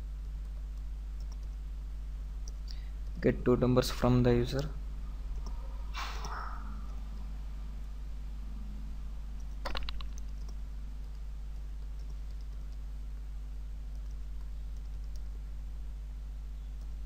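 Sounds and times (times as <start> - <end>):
steady low hum: 0.0 - 17.0
keyboard typing: 0.3 - 1.6, 9.4 - 12.8, 13.9 - 15.3.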